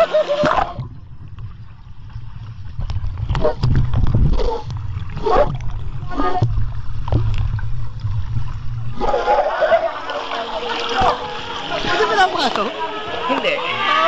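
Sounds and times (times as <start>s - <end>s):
muffled underwater rumble: 0.0s - 13.3s
water gurgling and bubbling: 0.0s - 13.8s.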